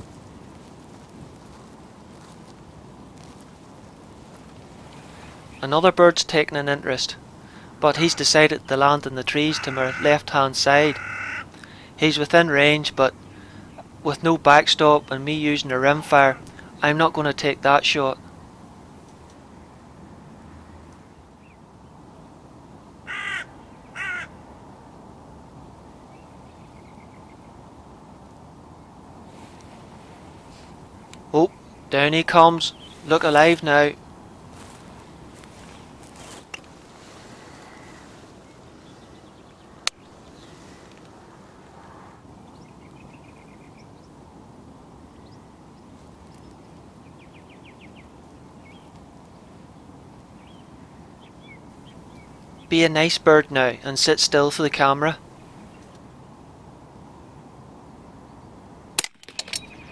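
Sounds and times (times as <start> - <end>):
low background noise: 0.0 - 59.9
songbirds calling: 0.0 - 59.9
crow cawing: 9.3 - 11.9, 23.0 - 24.4, 37.1 - 38.5.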